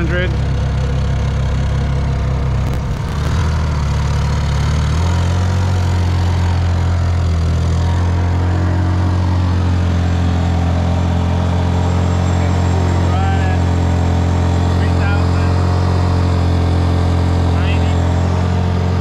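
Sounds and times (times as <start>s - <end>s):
generators humming: 2.7s - 4.3s.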